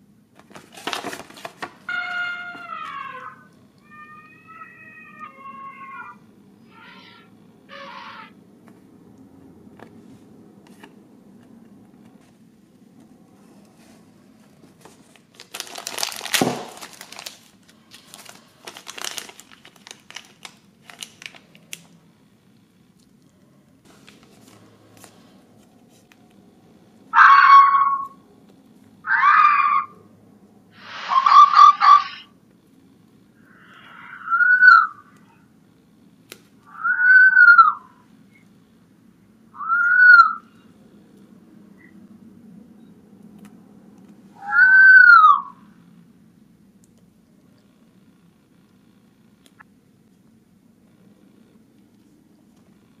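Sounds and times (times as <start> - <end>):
plastic packaging crinkling: 0.3 - 2.0, 14.7 - 22.0
fox calling: 1.9 - 8.4, 27.1 - 28.2, 29.0 - 30.1, 30.8 - 32.3, 33.4 - 35.4, 36.6 - 38.0, 39.5 - 40.6, 44.4 - 45.7.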